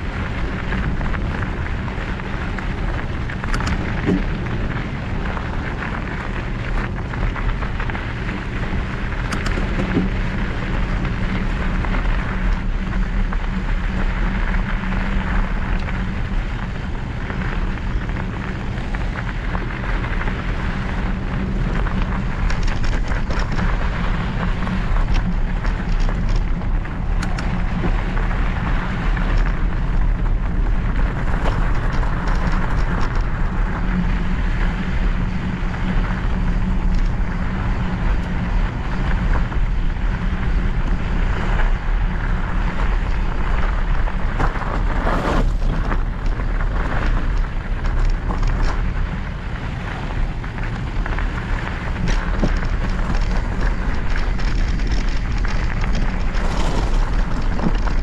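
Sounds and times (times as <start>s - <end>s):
bike tyres crunching over gravel: 0.0s - 58.0s
wind rumble on microphone: 0.0s - 58.0s
sharp clicks from stones: 0.3s - 13.4s, 17.3s - 33.5s, 43.9s - 49.0s, 49.8s - 58.0s.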